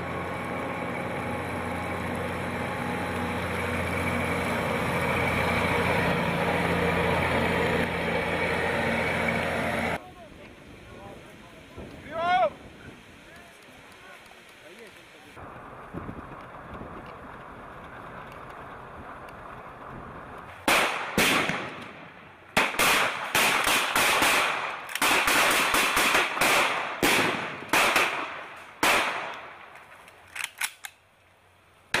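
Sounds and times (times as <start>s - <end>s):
rifle gunshots with echo: 22.6s - 29.6s.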